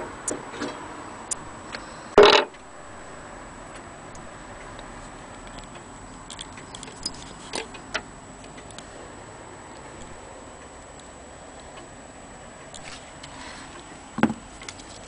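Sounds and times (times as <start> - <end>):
sharp clicks: 4.1 - 8.9.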